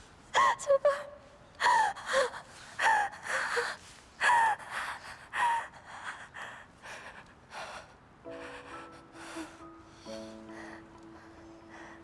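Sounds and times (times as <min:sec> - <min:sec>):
woman sobbing: 0:00.4 - 0:09.7.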